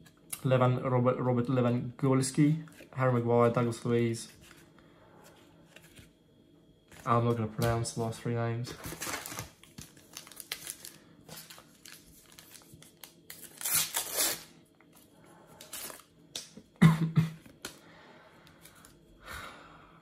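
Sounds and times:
cards rustling: 8.7s - 16.1s
foil packet crinkling and ripping: 8.7s - 16.5s.

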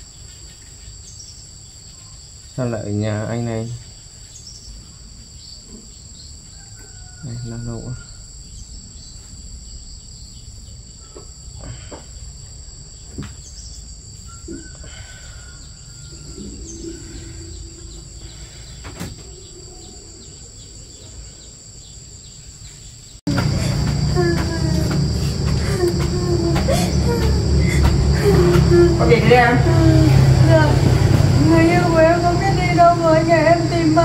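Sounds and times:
insects trilling: 0.0s - 34.0s
low rumble: 15.7s - 21.1s, 23.3s - 34.0s.

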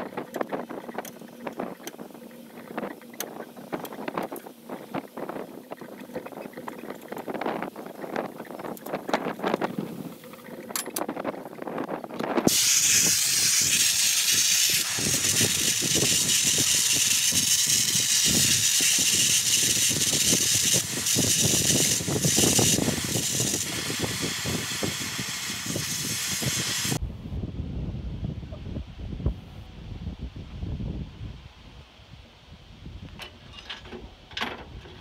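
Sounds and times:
blow torch flame hissing: 12.4s - 27.0s.

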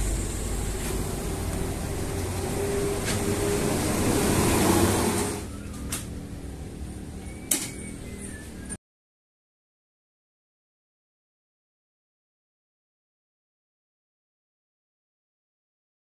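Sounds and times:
bus engine humming: 0.0s - 8.7s.

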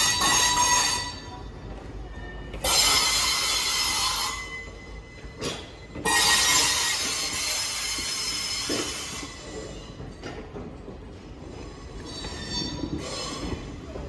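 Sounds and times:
train wheels screeching: 0.0s - 14.0s.

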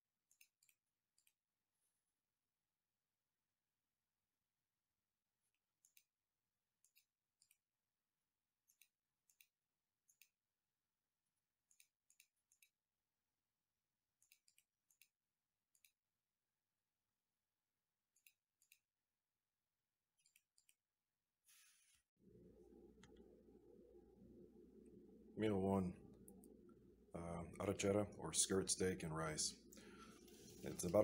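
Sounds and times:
computer mouse clicks: 5.8s - 6.1s, 8.6s - 10.4s, 11.7s - 12.8s, 14.2s - 16.0s.

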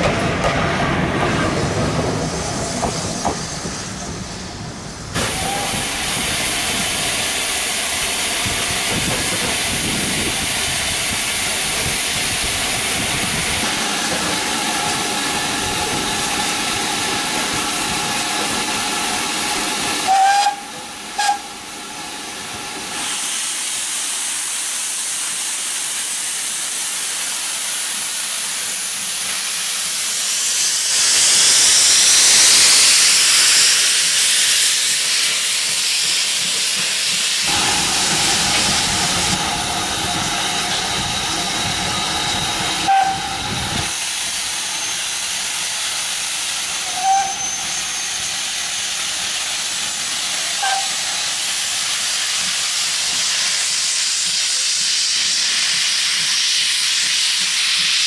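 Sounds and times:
steam engine hissing: 0.0s - 58.0s
steam whistle toots: 5.2s - 6.0s, 20.0s - 21.6s, 41.7s - 44.0s, 46.8s - 48.8s, 50.6s - 51.2s
drain cocks blowing sharp hiss: 5.2s - 58.0s.

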